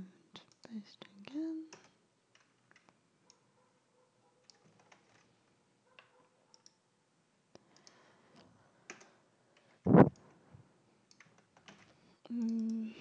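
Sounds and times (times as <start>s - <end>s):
mouse and keyboard clicks: 6.0s - 6.8s, 11.1s - 12.8s.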